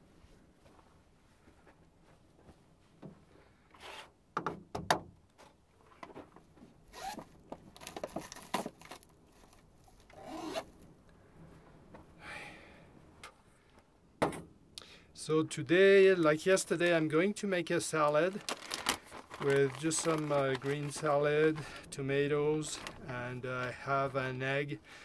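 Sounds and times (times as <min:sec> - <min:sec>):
plastic bags rustling: 0:07.0 - 0:10.2, 0:17.7 - 0:24.4.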